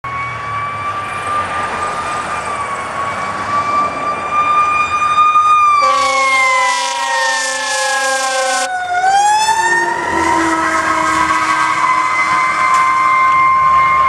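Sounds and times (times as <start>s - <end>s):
fire engine siren: 0.0s - 14.0s
road traffic noise: 0.0s - 14.0s
loud horn blasts: 5.8s - 8.7s, 9.8s - 13.2s.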